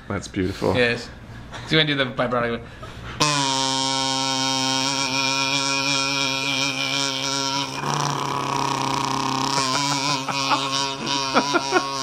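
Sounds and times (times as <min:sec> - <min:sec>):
kazoo buzzing with vibrato: 0:03.2 - 0:12.0.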